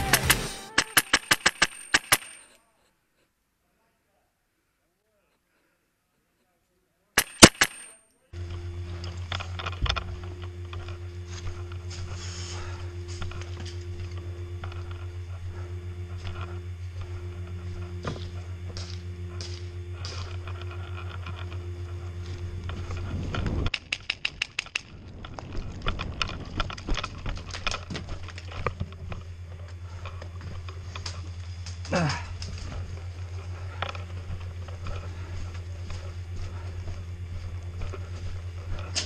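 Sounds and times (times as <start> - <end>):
airsoft rifle rapid burst: 0.0 - 2.5, 7.2 - 7.9
scattered clicks: 0.0 - 2.6, 7.2 - 11.0, 18.6 - 39.0
steady low hum: 0.0 - 39.0.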